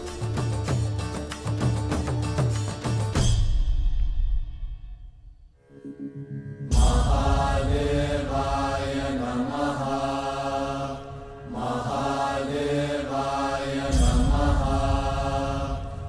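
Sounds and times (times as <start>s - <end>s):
deep drone: 5.6s - 16.0s
voices chanting in long held notes: 6.7s - 16.0s.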